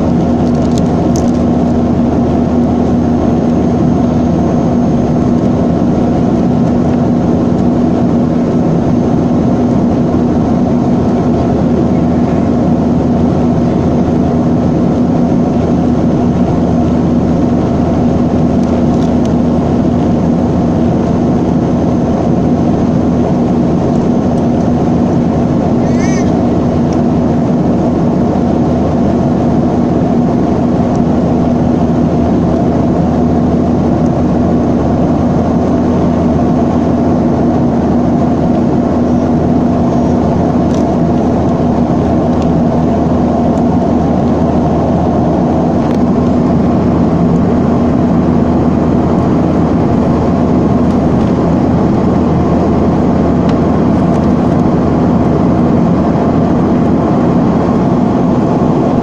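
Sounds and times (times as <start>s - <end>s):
jet engines droning: 0.0s - 59.0s
steady low hum: 0.0s - 59.0s.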